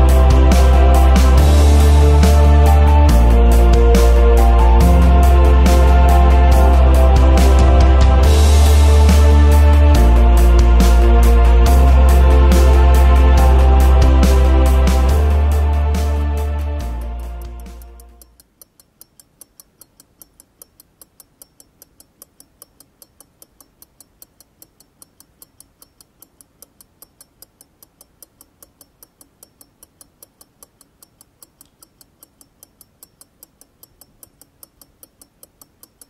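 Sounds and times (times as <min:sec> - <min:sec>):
music: 0:00.0 - 0:18.3
pocket watch ticking: 0:17.2 - 0:36.0.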